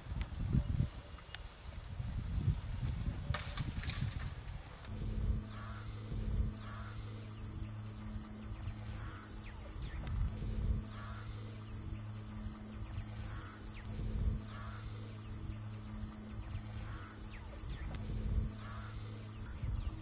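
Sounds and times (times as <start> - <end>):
bird calling: 4.9 - 20.0
high-pitched insect drone: 4.9 - 20.0
low steady hum: 4.9 - 20.0.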